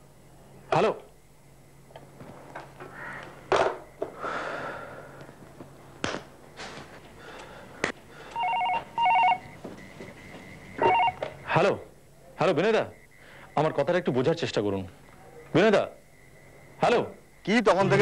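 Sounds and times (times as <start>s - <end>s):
telephone double ring: 8.4s - 9.5s, 10.8s - 11.4s.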